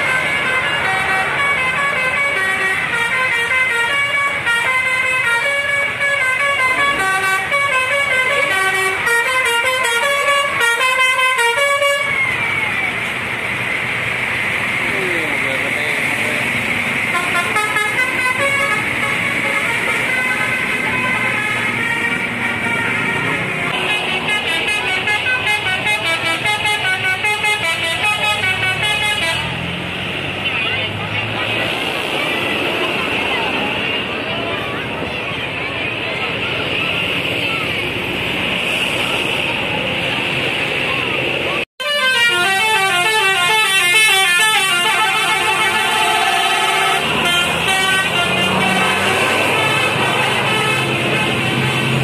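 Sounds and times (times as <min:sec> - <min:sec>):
bus horn playing a melody: 0:00.0 - 0:12.2, 0:17.1 - 0:29.7, 0:41.8 - 0:52.0
bus engine running: 0:00.0 - 0:52.0.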